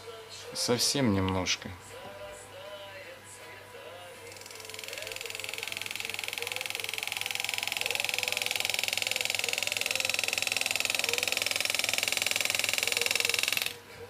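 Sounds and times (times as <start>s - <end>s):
pneumatic engraver buzzing: 4.3s - 13.8s.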